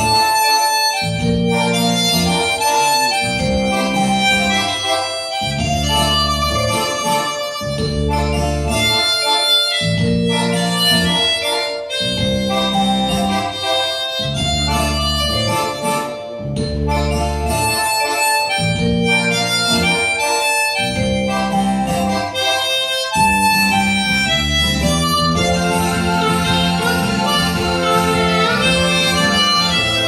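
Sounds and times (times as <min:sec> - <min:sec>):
harmonica melody: 0:00.0 - 0:30.0
low pulsing accompaniment: 0:03.2 - 0:04.8, 0:05.4 - 0:09.0, 0:23.2 - 0:30.0.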